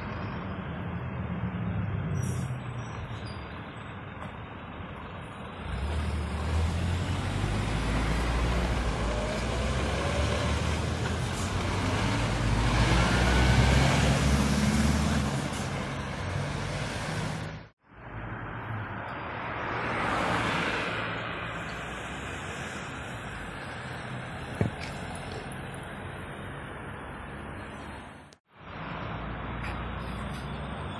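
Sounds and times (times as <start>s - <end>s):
lorry diesel engine rumbling past: 0.0s - 17.7s.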